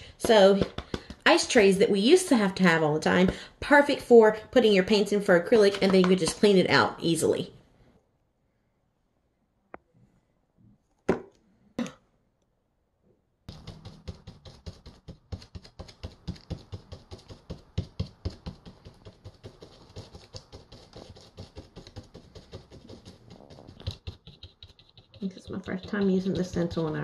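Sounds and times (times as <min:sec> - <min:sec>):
stencil brush dabbing taps: 0:00.2 - 0:01.3, 0:13.5 - 0:27.0.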